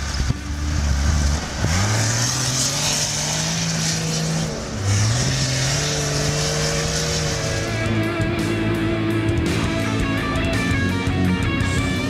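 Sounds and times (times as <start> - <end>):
truck engine pulling under load: 0.0 - 9.4.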